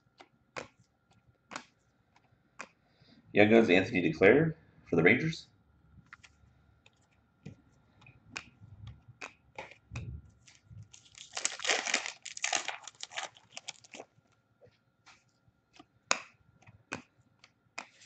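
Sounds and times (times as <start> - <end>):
trading cards clicking and tapping: 6.1 - 9.9
card pack wrapper tearing open: 10.9 - 14.0.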